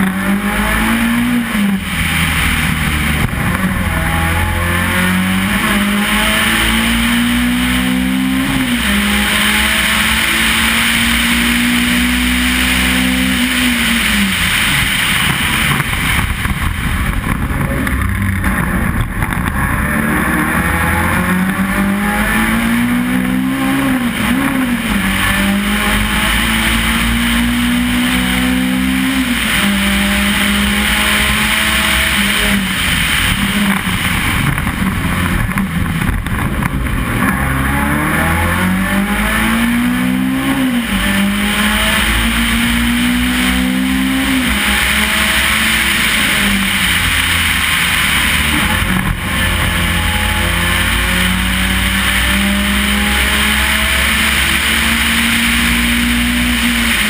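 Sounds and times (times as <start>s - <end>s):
race car engine accelerating: 0.0s - 57.0s
wind and road noise: 0.0s - 57.0s.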